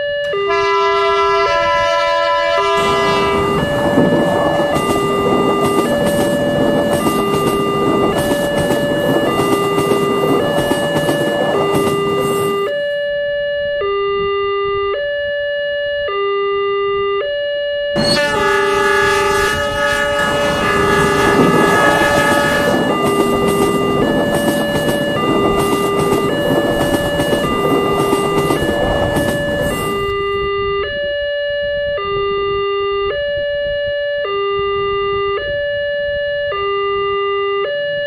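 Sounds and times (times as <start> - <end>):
two-tone level-crossing alarm: 0.0 - 38.0
passing train running noise: 0.2 - 13.0, 18.0 - 31.0.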